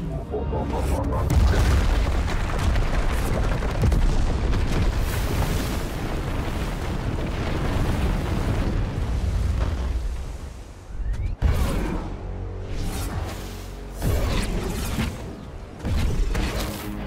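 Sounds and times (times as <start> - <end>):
deep rumble: 0.0 - 10.7
explosive booms: 1.2 - 10.0
debris crashing: 1.3 - 10.4.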